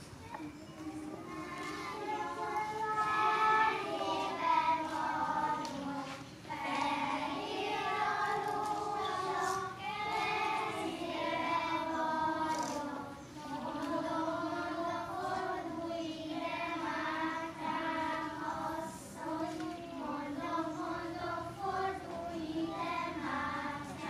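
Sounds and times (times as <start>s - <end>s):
young children singing: 0.0s - 24.0s.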